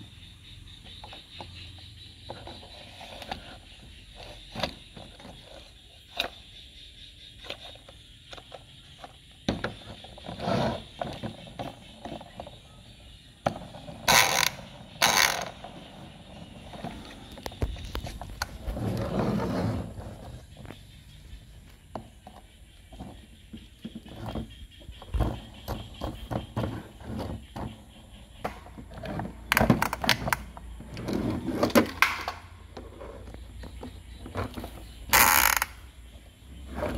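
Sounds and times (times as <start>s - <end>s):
harsh plastic scrapes: 16.3s - 20.8s.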